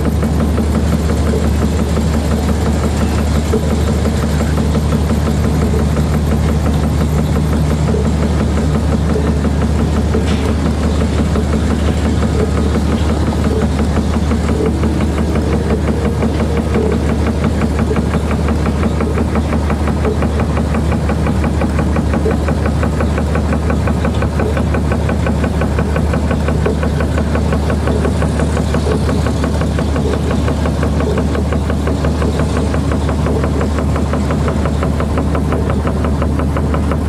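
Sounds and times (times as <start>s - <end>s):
dark ambient drone music: 0.0s - 37.0s
deep steady hum: 0.0s - 37.0s.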